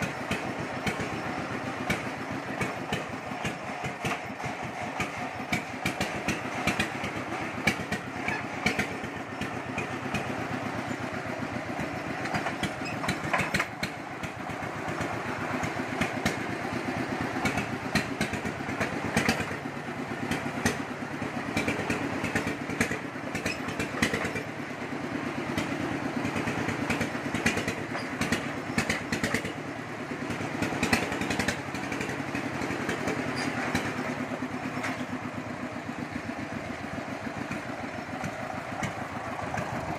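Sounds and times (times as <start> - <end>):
diesel engine running: 0.0 - 39.9
chassis clanks and clatter: 1.8 - 16.5.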